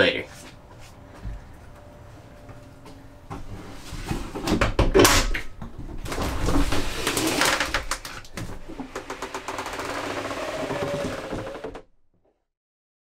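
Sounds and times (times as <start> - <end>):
wooden door knocking and rattling: 8.8 - 11.8.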